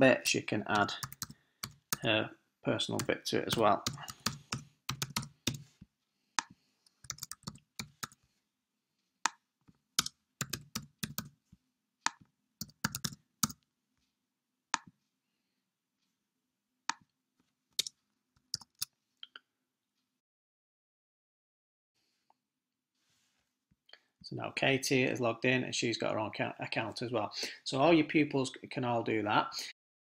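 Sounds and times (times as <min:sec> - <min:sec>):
keyboard typing clicks: 0:00.8 - 0:02.0, 0:03.0 - 0:05.6, 0:06.4 - 0:08.2, 0:10.0 - 0:11.3, 0:12.1 - 0:13.6.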